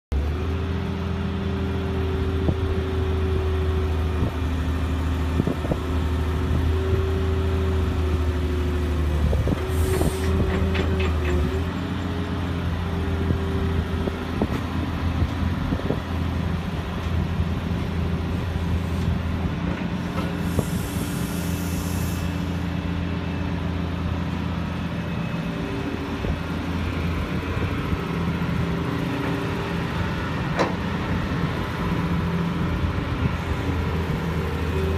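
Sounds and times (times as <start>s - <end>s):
excavator diesel engine and hydraulics: 0.1s - 34.9s
short hisses: 20.4s - 22.6s.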